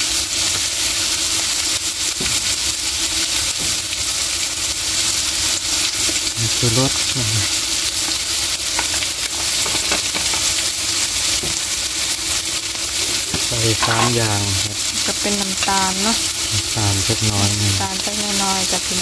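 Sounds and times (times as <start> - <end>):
food sizzling in hot oil: 0.0 - 19.0
metal spoon scraping pan: 8.8 - 10.6, 12.8 - 14.5.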